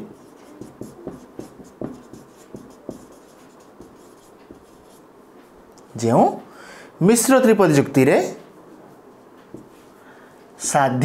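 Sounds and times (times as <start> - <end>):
marker writing on whiteboard: 0.0 - 5.6, 9.1 - 10.0.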